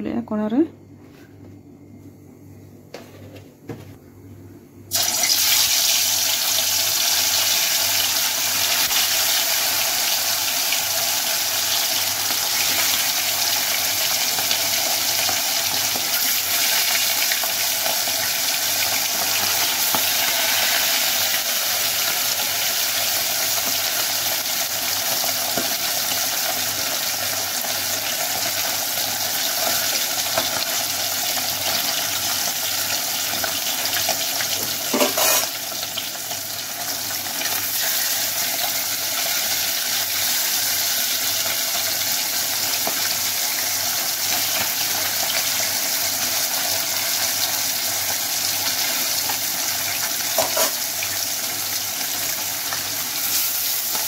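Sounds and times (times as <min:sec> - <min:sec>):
fish sizzling in hot oil: 0:04.9 - 0:54.0.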